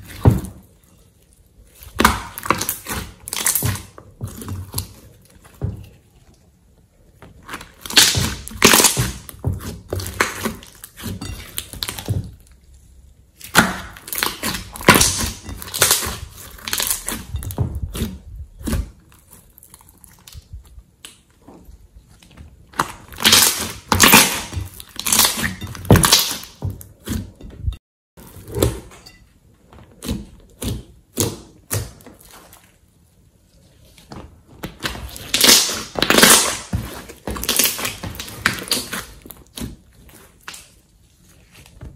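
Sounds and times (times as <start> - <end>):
slime crackling and popping: 1.7 - 5.0, 7.4 - 12.1, 13.4 - 21.3, 22.7 - 26.6, 34.7 - 40.8.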